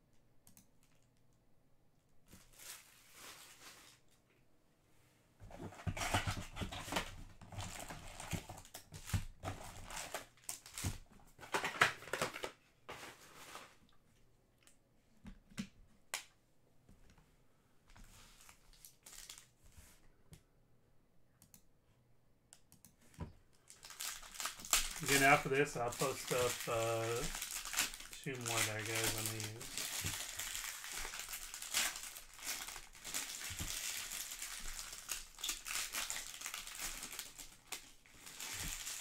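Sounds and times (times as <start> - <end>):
foil packs crinkling: 5.9 - 12.5, 18.4 - 19.5, 23.6 - 39.0.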